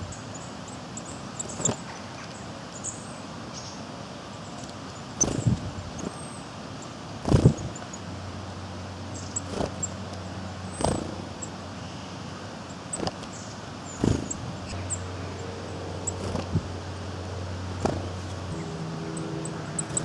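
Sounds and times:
low steady hum: 0:00.0 - 0:20.0
wing flutters: 0:05.2 - 0:06.2, 0:07.2 - 0:07.9, 0:09.4 - 0:10.0, 0:10.7 - 0:11.4, 0:12.9 - 0:20.0
birds pecking and knocking: 0:09.4 - 0:09.9, 0:10.8 - 0:11.4, 0:12.9 - 0:13.4, 0:14.0 - 0:16.7, 0:17.7 - 0:20.0
high bird calls: 0:10.6 - 0:20.0.

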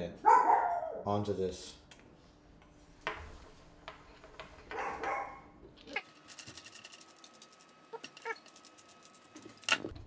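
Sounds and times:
dog yelp: 0:00.2 - 0:01.1, 0:04.8 - 0:05.4
small parts and screwdriver clicking: 0:06.0 - 0:09.9.

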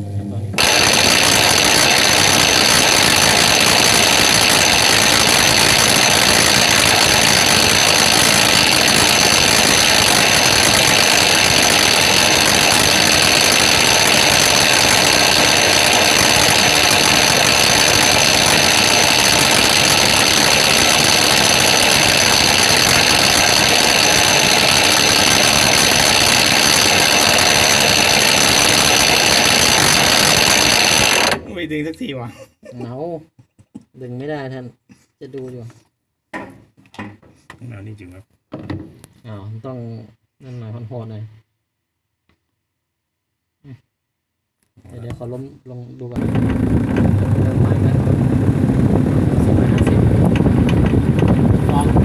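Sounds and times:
washing machine motor whirring: 0:00.0 - 0:31.6, 0:46.2 - 0:52.0.

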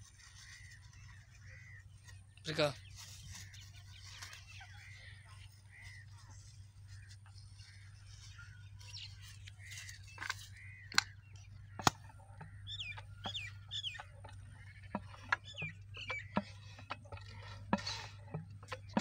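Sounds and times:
birds chirping: 0:00.0 - 0:19.0
sharp clicks: 0:10.2 - 0:12.1.

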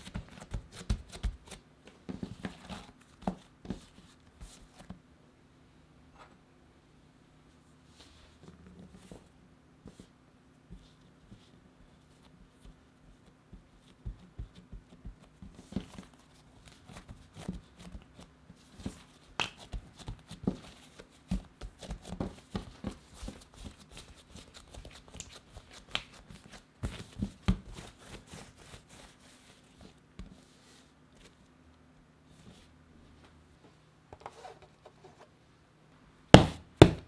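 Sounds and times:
hands kneading dough: 0:00.0 - 0:05.0, 0:07.9 - 0:33.4
dough slaps: 0:18.9 - 0:28.4, 0:36.3 - 0:37.0.

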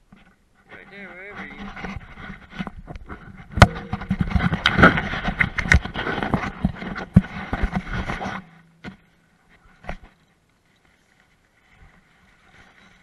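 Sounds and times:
objects clattering against a small boat: 0:00.0 - 0:10.3.

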